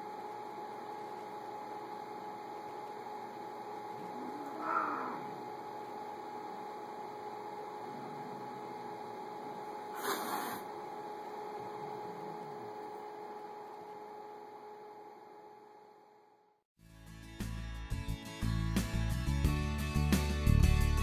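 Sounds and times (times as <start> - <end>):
household hum: 0.0 - 16.6.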